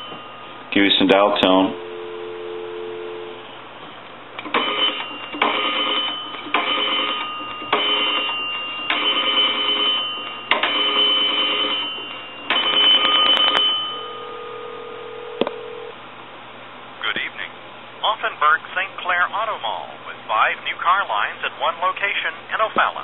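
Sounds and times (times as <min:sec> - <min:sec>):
ringback tone: 0:00.0 - 0:03.5, 0:04.5 - 0:15.9
dial tone: 0:01.7 - 0:03.4, 0:12.7 - 0:15.9
phone bell tapping faintly: 0:04.6 - 0:15.9.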